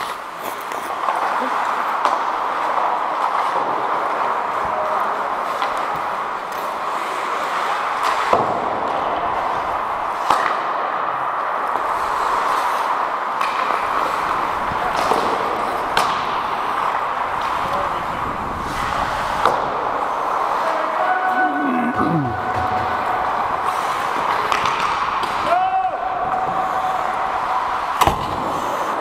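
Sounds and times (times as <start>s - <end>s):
hockey sticks cracking on puck: 0.0s - 20.9s, 22.0s - 29.0s
skate blades hissing on ice: 11.8s - 20.6s, 26.4s - 29.0s.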